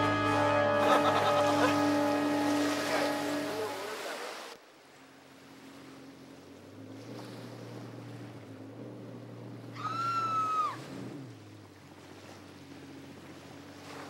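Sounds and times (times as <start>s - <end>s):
loud high held tone: 0.0s - 4.0s
personal watercraft engine drone: 0.0s - 14.0s
water wash: 0.0s - 14.0s.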